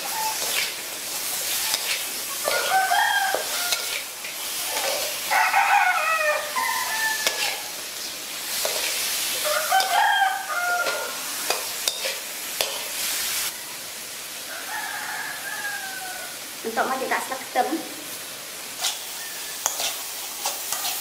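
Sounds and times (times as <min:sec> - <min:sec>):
rooster crowing: 0:00.0 - 0:00.6, 0:01.6 - 0:04.1, 0:04.7 - 0:07.8, 0:09.4 - 0:11.4, 0:14.4 - 0:16.4, 0:19.1 - 0:19.7
metal spatula scraping: 0:00.0 - 0:05.3, 0:06.4 - 0:10.1, 0:10.8 - 0:13.1, 0:18.8 - 0:21.0
prawns sizzling in a wok: 0:00.0 - 0:21.0.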